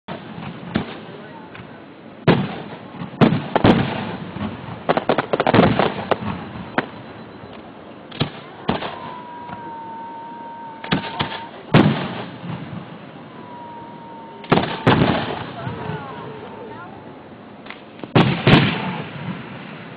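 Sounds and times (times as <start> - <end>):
fireworks bangs and crackles: 0.1 - 16.8, 17.6 - 19.9.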